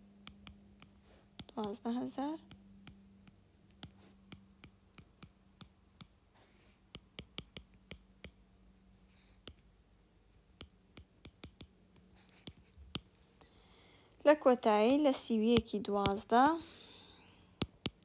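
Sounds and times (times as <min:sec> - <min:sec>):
low steady hum: 0:00.0 - 0:18.0
stylus tapping on glass screen: 0:07.0 - 0:08.4, 0:10.6 - 0:11.7.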